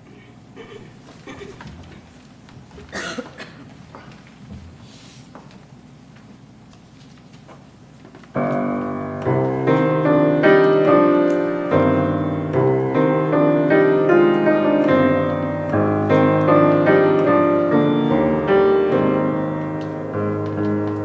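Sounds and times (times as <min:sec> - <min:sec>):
grand piano playing: 0:08.2 - 0:21.0.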